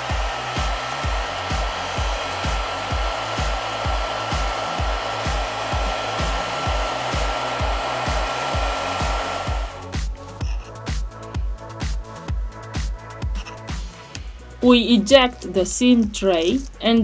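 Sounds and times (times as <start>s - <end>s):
heat gun blowing: 0.0s - 10.3s
electronic music with steady beat: 0.0s - 17.0s.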